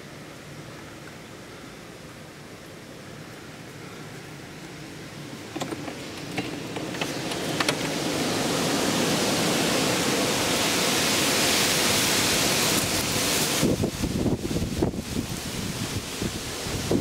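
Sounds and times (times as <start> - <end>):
rain and wind rushing: 2.5 - 17.0.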